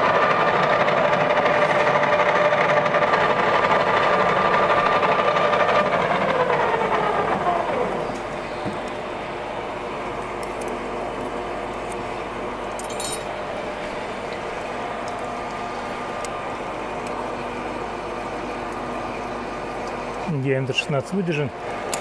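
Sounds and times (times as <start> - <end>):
short metallic clink: 12.8 - 13.3.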